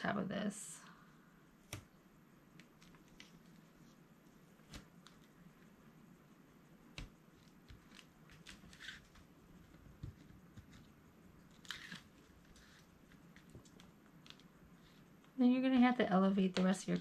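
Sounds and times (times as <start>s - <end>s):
scratchy paper rustles: 7.4s - 15.0s.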